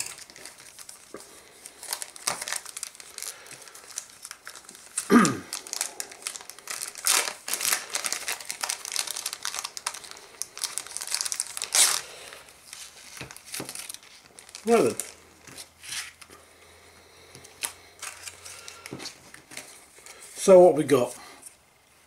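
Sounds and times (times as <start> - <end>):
brief plastic crackle: 0.0 - 16.3
plastic packaging crinkling: 0.0 - 16.3, 17.4 - 20.5.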